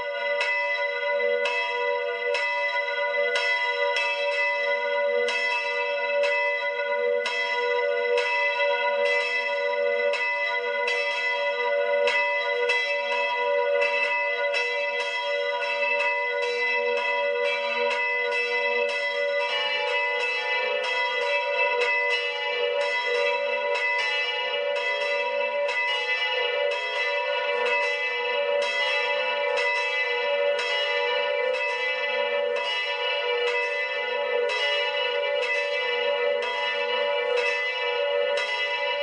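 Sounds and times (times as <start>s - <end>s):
church bells pealing: 0.0s - 39.0s.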